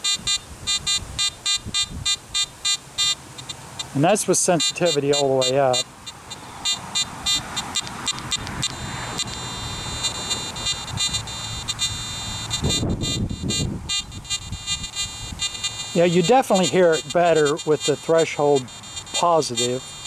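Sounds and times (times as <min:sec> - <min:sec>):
metal detector high hum: 0:00.0 - 0:20.0
metal detector clicks: 0:04.6 - 0:20.0.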